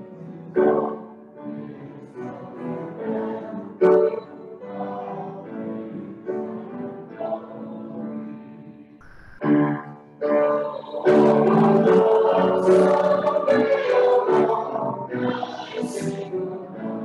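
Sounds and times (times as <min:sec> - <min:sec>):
slow hymn music: 0:00.0 - 0:17.0
sharp loud accent: 0:09.0 - 0:09.6.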